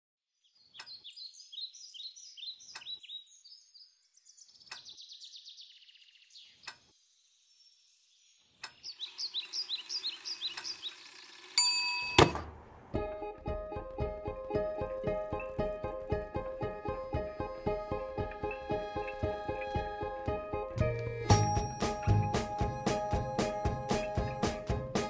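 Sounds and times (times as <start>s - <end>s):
birds chirping: 0.4s - 11.6s, 14.8s - 25.0s
alarm clock ringing ding: 11.6s - 12.3s, 21.3s - 24.0s
alarm clock clunk: 11.6s - 12.5s, 21.3s - 24.4s.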